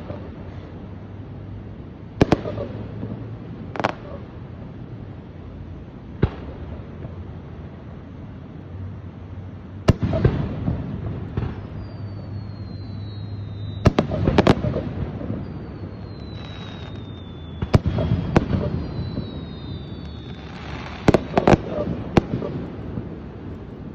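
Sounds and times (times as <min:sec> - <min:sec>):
high whistles gliding down: 0:11.0 - 0:23.9
firework shells bursting: 0:12.8 - 0:23.1.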